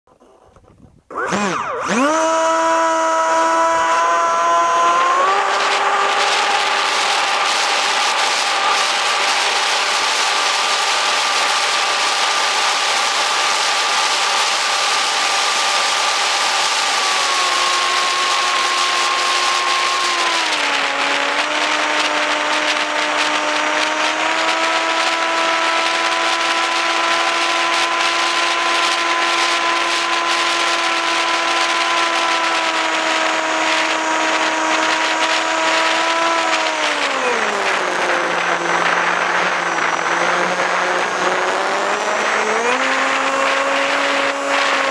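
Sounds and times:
electric motor and propeller whining: 0.1 - 44.9
wind rush: 18.9 - 44.9.

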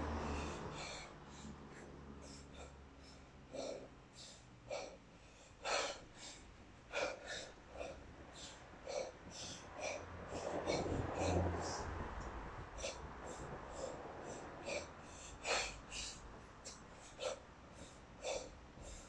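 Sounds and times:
forceful breathing: 0.0 - 19.0.

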